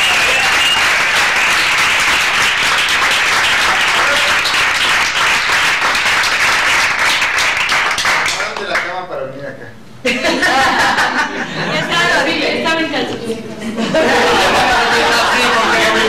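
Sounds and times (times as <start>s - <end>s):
roomful of people applauding: 0.0s - 9.1s, 14.1s - 16.0s.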